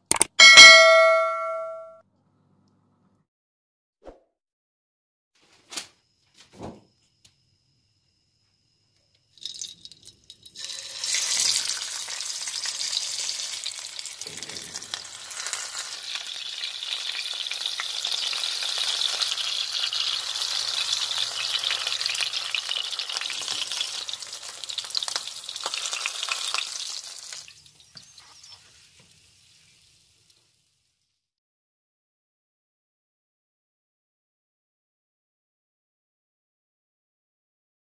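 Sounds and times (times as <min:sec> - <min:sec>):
meat sizzling in hot oil: 0:09.4 - 0:31.2.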